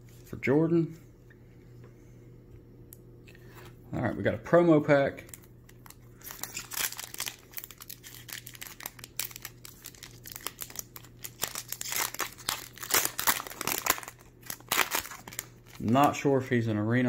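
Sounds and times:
wrapper tearing and crinkling: 5.2s - 16.3s.

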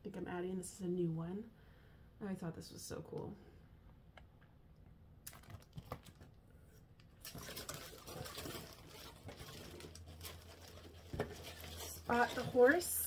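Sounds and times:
plastic sleeves crinkling: 5.2s - 6.4s, 7.0s - 13.0s.

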